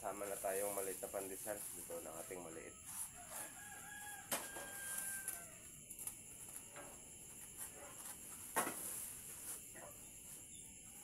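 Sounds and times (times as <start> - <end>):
steady high hiss: 0.0 - 3.3
rooster crowing: 2.6 - 5.7.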